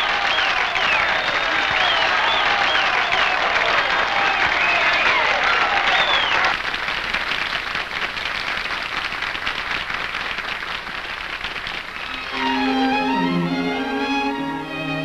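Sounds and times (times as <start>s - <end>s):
audience applause: 0.0s - 15.0s
orchestra with strings playing: 12.0s - 15.0s.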